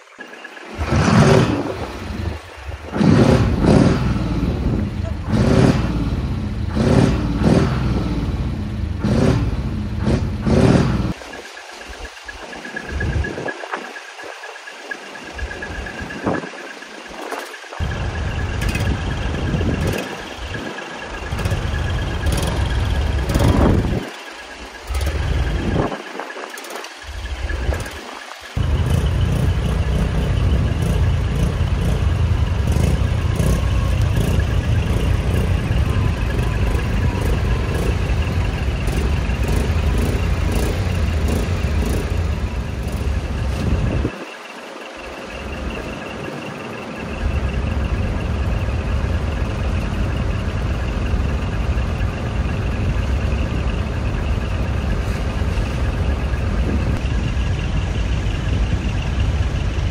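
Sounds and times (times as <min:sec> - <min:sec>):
diesel truck engine idling: 0:17.8 - 0:25.9, 0:26.6 - 0:44.1, 0:44.9 - 0:59.9.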